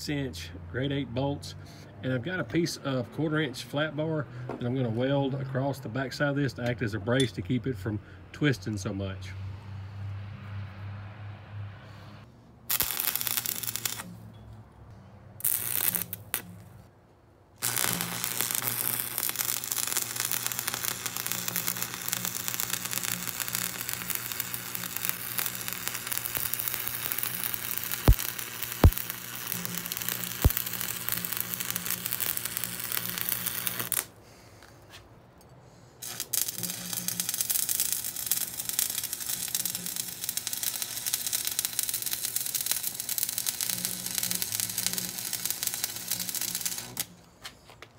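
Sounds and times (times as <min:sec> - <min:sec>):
welding arc crackling and hissing: 0:12.7 - 0:14.2, 0:15.4 - 0:16.8, 0:17.6 - 0:34.1, 0:36.0 - 0:47.2
sharp pops: 0:23.7 - 0:34.1.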